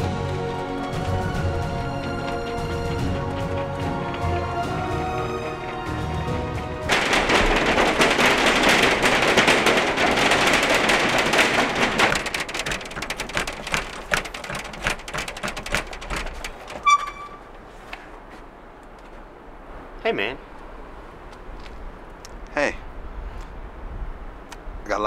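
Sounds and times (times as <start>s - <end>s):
fists banging on glass: 6.9s - 16.9s.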